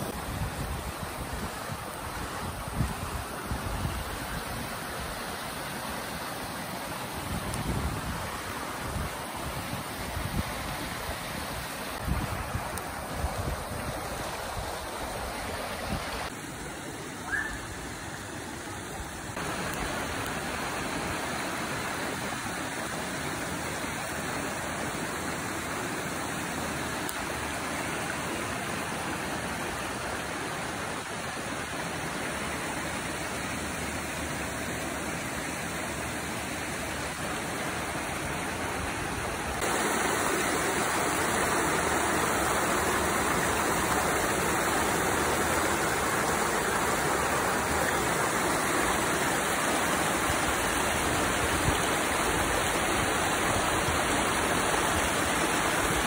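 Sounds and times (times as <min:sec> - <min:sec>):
creek water rushing over rocks: 0:00.0 - 0:56.0.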